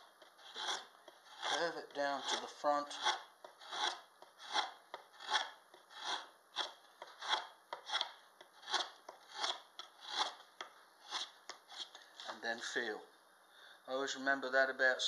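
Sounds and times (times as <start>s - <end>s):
draw knife shaving wood: 0.2s - 10.4s, 11.0s - 11.9s.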